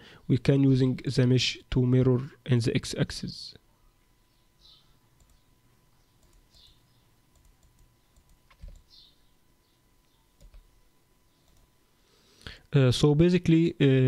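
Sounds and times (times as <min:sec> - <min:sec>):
computer mouse clicks: 0:06.2 - 0:06.7, 0:07.3 - 0:08.9, 0:10.4 - 0:10.6, 0:11.4 - 0:11.7.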